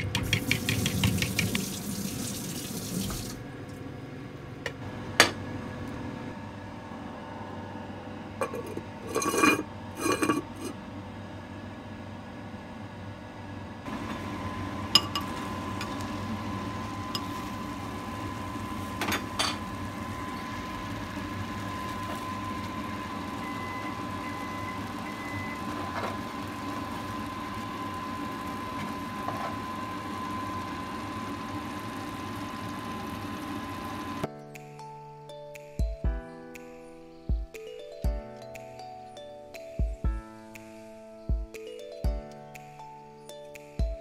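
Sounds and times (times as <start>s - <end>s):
kitchen hum with high whine: 0.0s - 34.3s.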